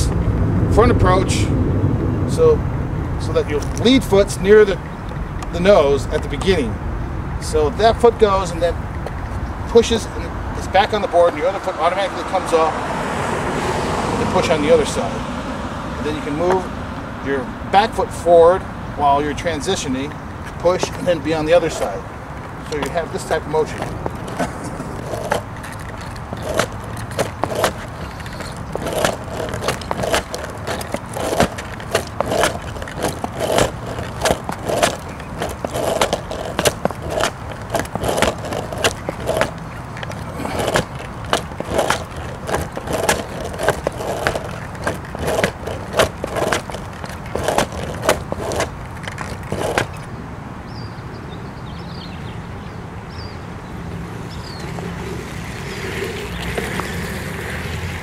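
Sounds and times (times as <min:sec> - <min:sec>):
steady low rumble: 0:00.0 - 0:05.6
sneakers slapping on asphalt: 0:20.0 - 0:50.1, 0:54.0 - 0:57.7
skateboard knocks: 0:23.6 - 0:50.1.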